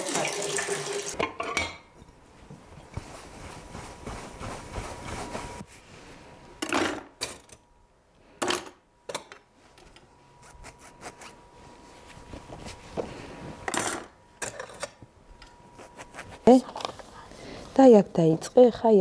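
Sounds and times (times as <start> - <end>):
cutlery and dishes clinking: 1.2 - 1.9, 13.7 - 15.0.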